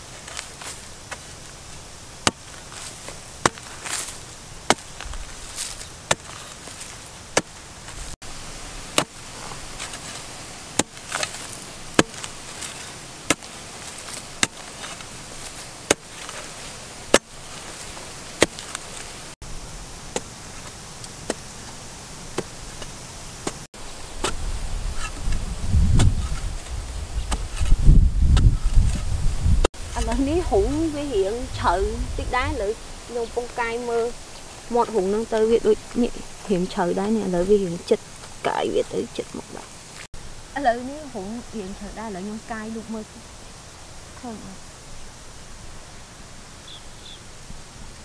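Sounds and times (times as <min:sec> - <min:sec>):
hand hoe chopping hard soil: 0:02.2 - 0:08.1, 0:08.9 - 0:19.2, 0:20.1 - 0:24.4, 0:25.0 - 0:29.0.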